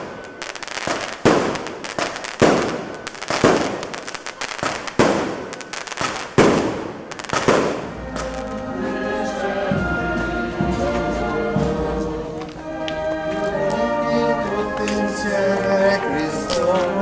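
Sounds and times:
music: 0:00.0 - 0:06.3, 0:07.1 - 0:17.0
fireworks bursting and crackling: 0:00.0 - 0:08.6.

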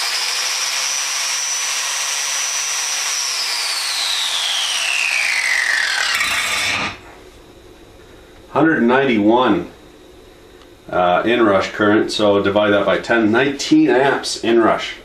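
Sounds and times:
angle grinder whining: 0:00.0 - 0:07.1.

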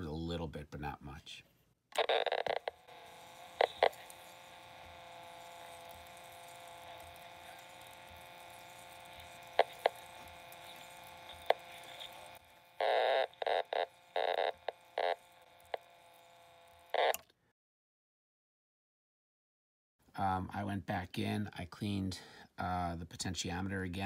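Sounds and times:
tape player hum: 0:01.9 - 0:17.3.

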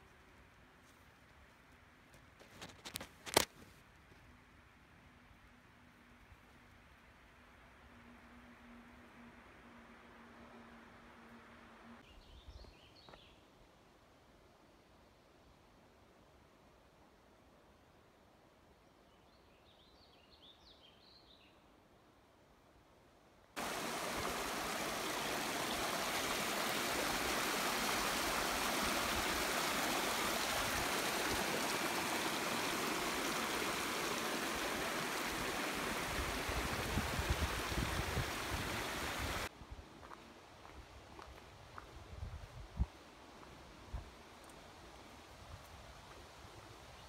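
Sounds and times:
creek rushing over rocks: 0:23.6 - 0:39.5.

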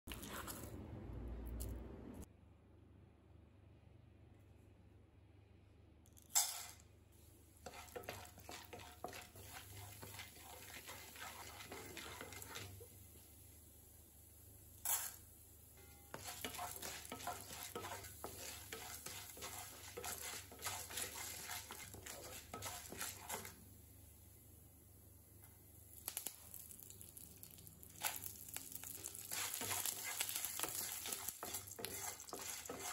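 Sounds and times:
wooden spatula stirring in pan: 0:07.6 - 0:13.0, 0:16.1 - 0:23.6, 0:28.0 - 0:32.9
food sizzling in hot oil: 0:07.6 - 0:23.6, 0:25.7 - 0:32.9.

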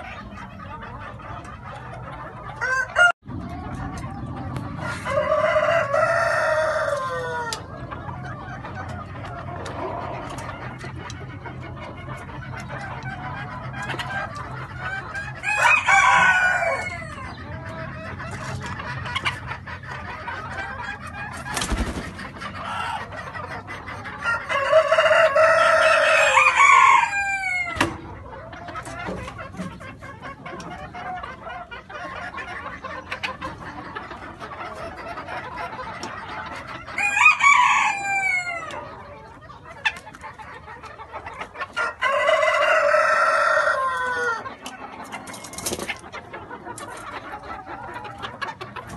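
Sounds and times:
hens clucking: 0:00.0 - 0:48.9
roosters crowing: 0:02.4 - 0:03.2, 0:04.4 - 0:08.0, 0:14.2 - 0:17.9, 0:22.5 - 0:23.2, 0:24.0 - 0:28.4, 0:36.8 - 0:39.2, 0:41.6 - 0:46.0.

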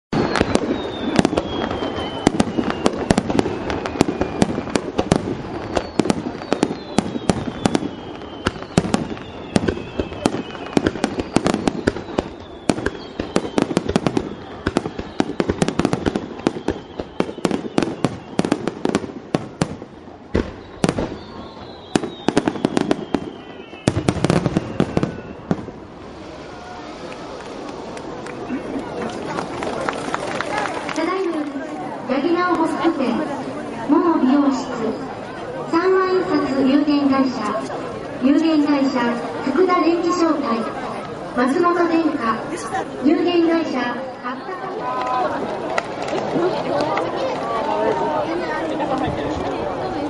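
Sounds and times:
fireworks whistles falling in pitch: 0:00.1 - 0:28.0
fireworks bangs and crackles: 0:00.1 - 0:50.0.

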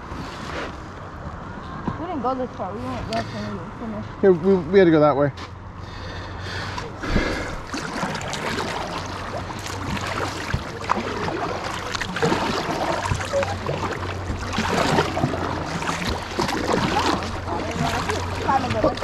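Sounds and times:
kayak paddles splashing in water: 0:06.6 - 0:19.0
water dripping from paddle blades: 0:07.7 - 0:19.0.

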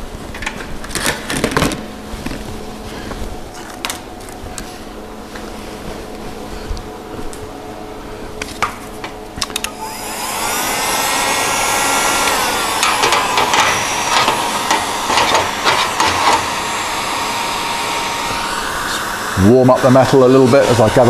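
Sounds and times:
welding arc hissing and humming: 0:09.0 - 0:21.0.

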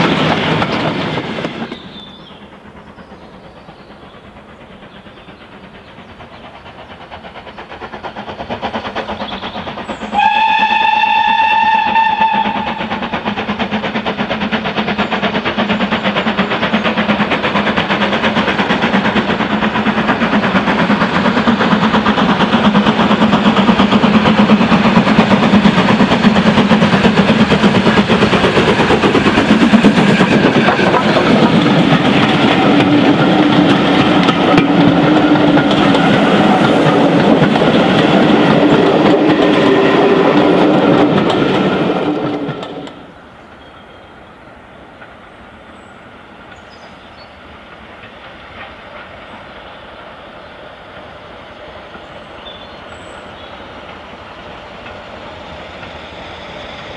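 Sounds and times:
steam locomotive exhaust: 0:00.0 - 0:56.9
steam whistle blast: 0:10.1 - 0:13.0.

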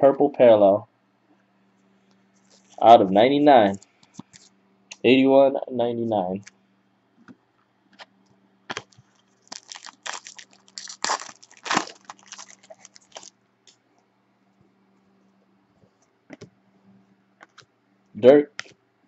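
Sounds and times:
foil wrapper crinkling: 0:08.7 - 0:13.3.

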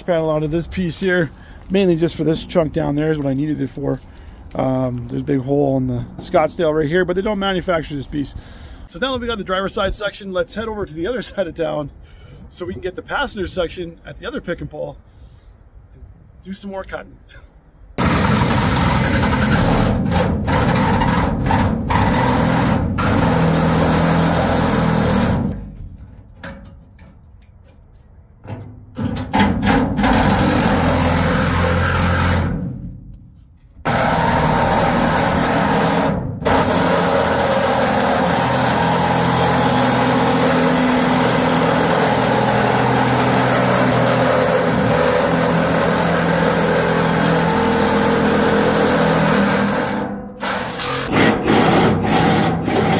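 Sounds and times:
reciprocating saw cutting sheet metal: 0:18.0 - 0:25.6, 0:29.4 - 0:32.9, 0:33.9 - 0:52.9.

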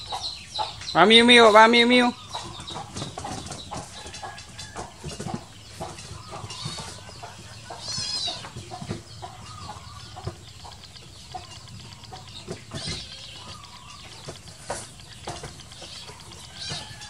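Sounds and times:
animals scuffling on a mat: 0:01.9 - 0:10.5, 0:11.3 - 0:17.0
short high squeaks: 0:07.7 - 0:08.6.

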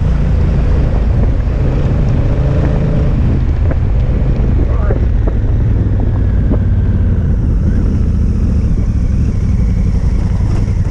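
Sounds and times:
motorcycle engine running: 0:00.0 - 0:10.9
wind rumbling on microphone: 0:00.0 - 0:10.9.

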